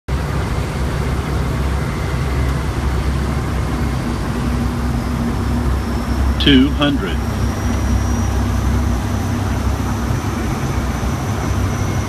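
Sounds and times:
aircraft engine drone: 0.1 - 12.0
faint steady hum: 3.0 - 11.9.

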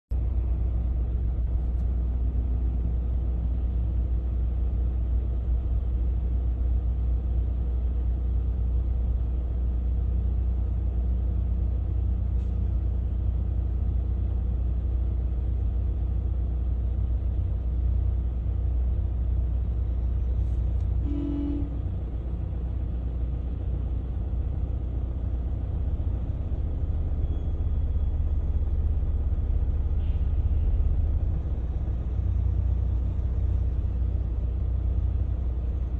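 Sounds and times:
car engine and road noise: 0.1 - 35.9.

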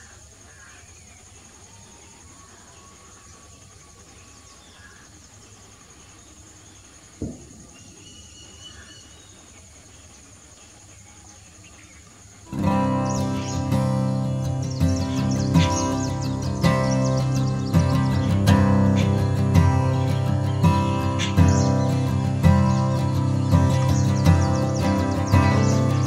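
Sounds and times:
insects chirring: 0.0 - 26.0
short bird calls: 6.8 - 9.8, 10.8 - 26.0
sharp thump: 7.2 - 7.7.

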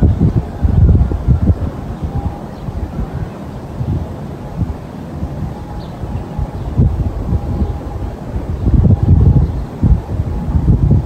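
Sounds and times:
gusty wind buffeting microphone: 0.0 - 11.0.

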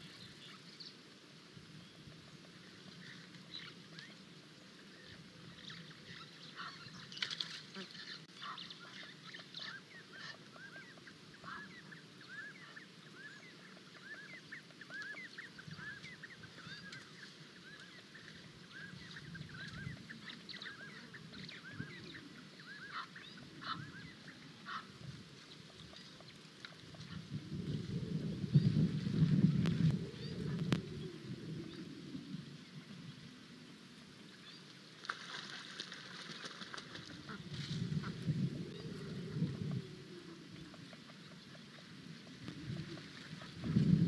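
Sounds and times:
flock of birds calling: 5.7 - 25.0.

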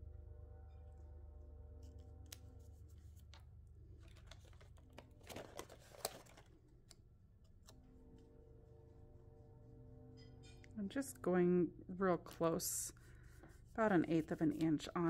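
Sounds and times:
sticker sheet rustling: 13.6 - 15.0.

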